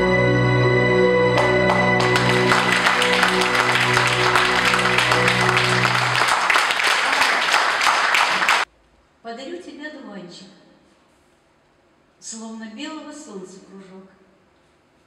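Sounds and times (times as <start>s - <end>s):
slow music: 0.0s - 8.4s
audience applauding: 1.4s - 8.7s.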